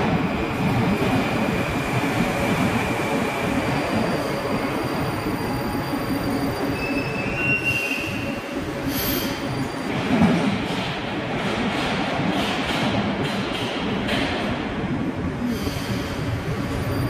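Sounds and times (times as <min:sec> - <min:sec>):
metro train rumbling: 0:00.0 - 0:17.0
high wheel squeal: 0:05.2 - 0:09.8.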